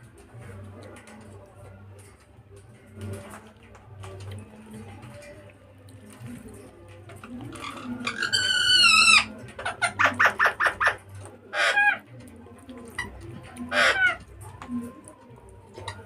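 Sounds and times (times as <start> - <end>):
bird calling: 13.0 - 14.2.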